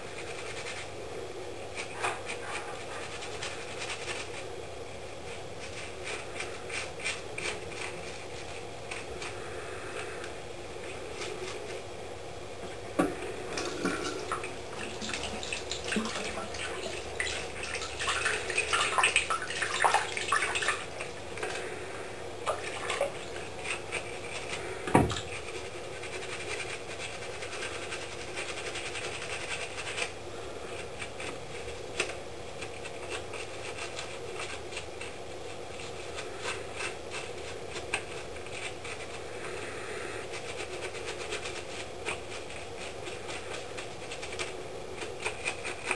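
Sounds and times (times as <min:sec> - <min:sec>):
toothbrush bristles scraping: 0:00.0 - 0:01.0, 0:01.6 - 0:10.2, 0:13.5 - 0:21.7, 0:22.5 - 0:45.9
tap water running into sink: 0:13.5 - 0:20.9.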